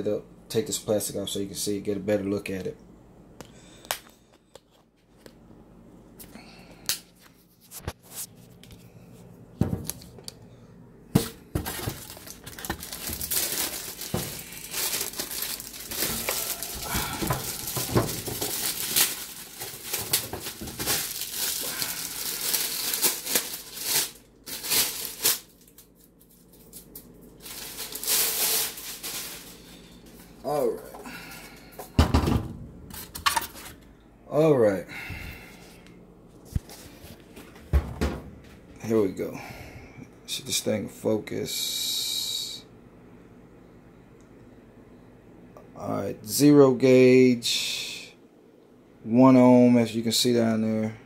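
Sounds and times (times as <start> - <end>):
packaging being handled: 11.2 - 30.3
plastic wrapping crinkling: 11.2 - 30.6.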